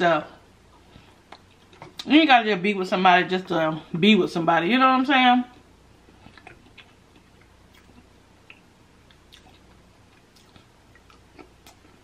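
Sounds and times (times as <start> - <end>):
wet chewing mouth clicks: 6.1 - 12.0.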